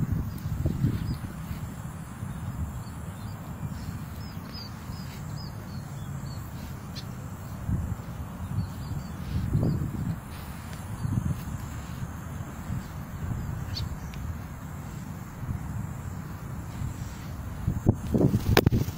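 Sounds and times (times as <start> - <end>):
high bird chirps: 0.0 - 14.4
low rumble on microphone: 0.0 - 18.9.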